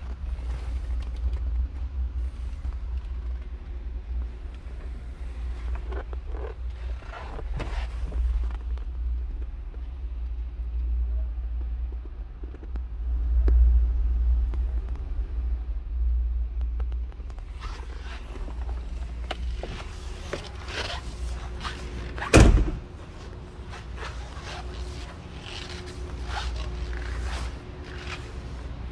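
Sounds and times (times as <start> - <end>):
low rumble on microphone: 0.0 - 28.9
loud thump: 22.3 - 22.9.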